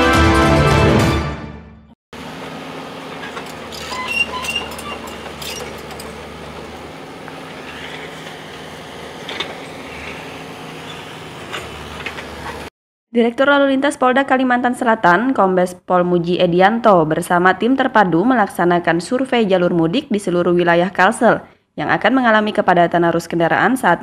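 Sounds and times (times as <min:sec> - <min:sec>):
diesel engine running: 0:02.2 - 0:12.7.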